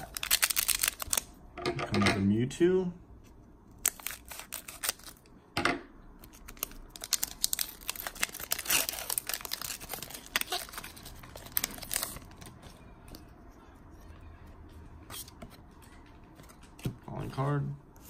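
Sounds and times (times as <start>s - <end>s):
plastic wrapping crackling: 0.0s - 1.3s, 3.8s - 5.2s, 6.2s - 12.8s
wrapper ripping: 0.0s - 1.3s, 3.8s - 5.2s, 6.2s - 12.6s.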